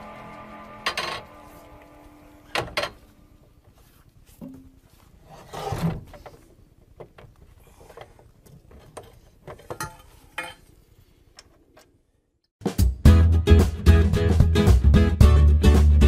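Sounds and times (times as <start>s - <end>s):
metal scrape: 0.0s - 3.2s, 5.2s - 6.3s.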